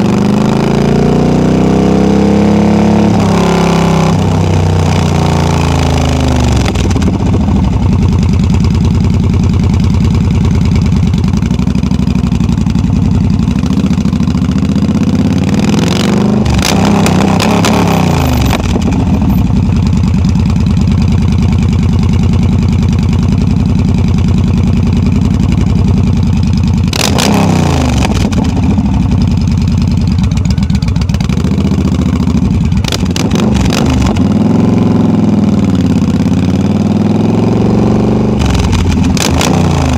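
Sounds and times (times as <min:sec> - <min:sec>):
motorcycle engine running loud: 0:00.0 - 0:39.9.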